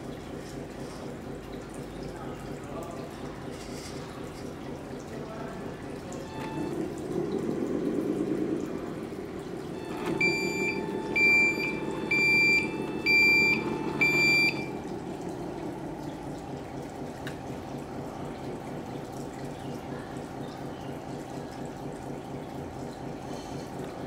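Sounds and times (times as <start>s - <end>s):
simulated diesel engine: 0.0s - 24.0s
reversing alarm beeps: 6.2s - 6.9s, 9.8s - 14.9s.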